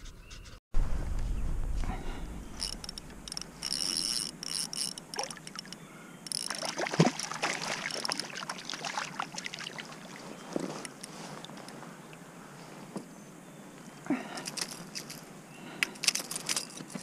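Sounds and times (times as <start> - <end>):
fish splashing in water: 6.3 - 10.5.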